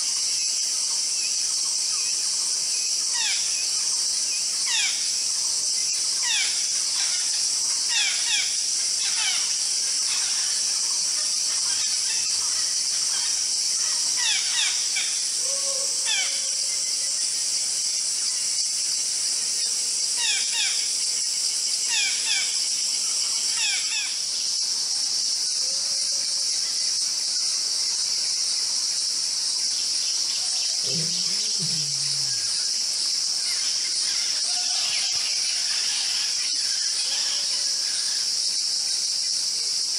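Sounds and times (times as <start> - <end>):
high-pitched insect drone: 0.0 - 39.9
short low call: 30.8 - 32.6.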